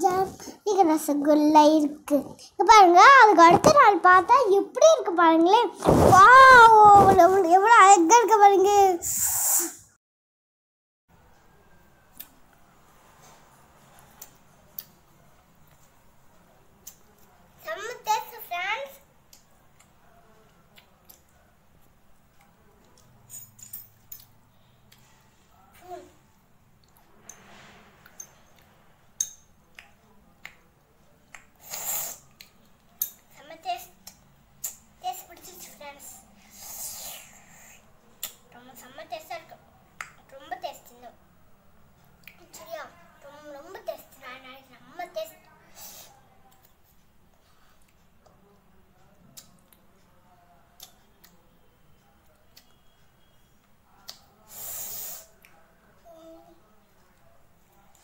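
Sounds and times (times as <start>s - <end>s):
loud hiss of breath: 9.1s - 9.8s, 54.5s - 55.3s.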